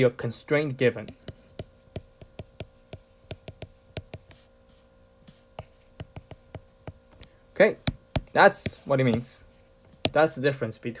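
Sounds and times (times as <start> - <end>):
low steady hum: 0.0 - 11.0
stylus tapping on glass screen: 1.0 - 4.4, 5.5 - 9.3.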